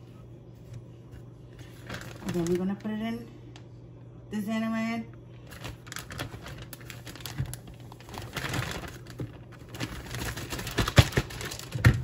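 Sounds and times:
plastic bag crinkling: 0:01.5 - 0:03.0, 0:05.4 - 0:12.0.

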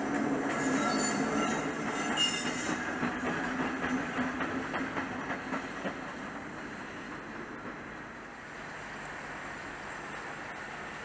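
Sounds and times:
train wheels clicking over rail joints: 0:00.0 - 0:09.2
high wheel squeal: 0:00.6 - 0:02.9.

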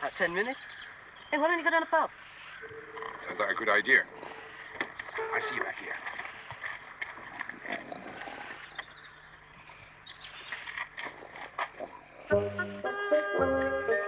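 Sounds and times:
faint bird chirps: 0:00.0 - 0:01.7, 0:02.3 - 0:05.7, 0:08.6 - 0:10.7
music: 0:12.3 - 0:14.0.

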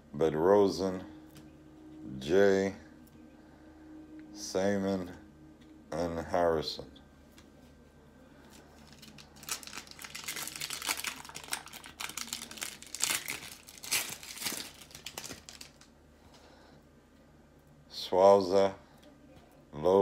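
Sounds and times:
wrapper tearing and crinkling: 0:08.5 - 0:15.9.

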